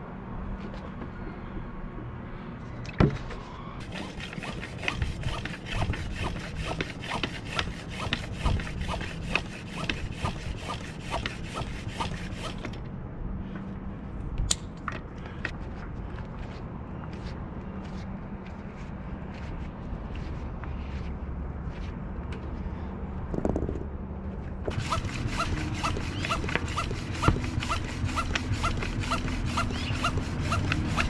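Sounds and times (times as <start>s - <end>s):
floor pump strokes: 3.8s - 12.7s, 24.7s - 31.0s
sharp click: 14.4s - 14.8s.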